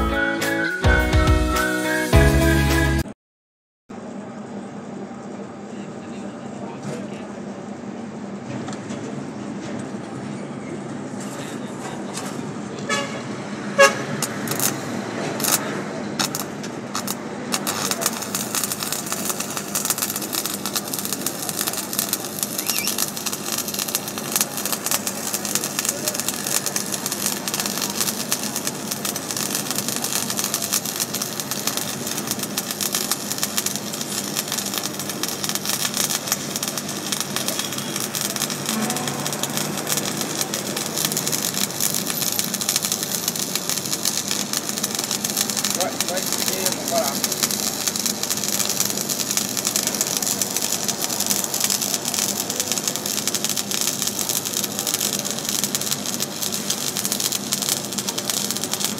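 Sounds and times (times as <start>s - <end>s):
welding arc crackling: 13.8s - 58.9s.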